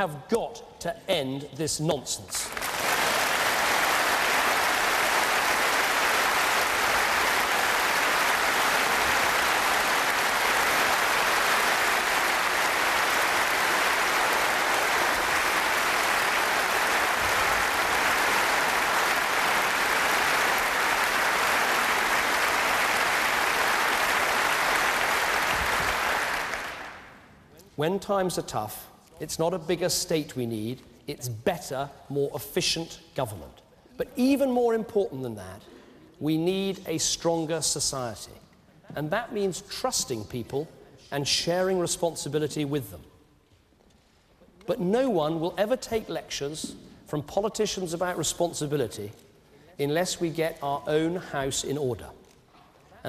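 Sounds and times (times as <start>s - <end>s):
audience applauding: 2.5s - 27.2s.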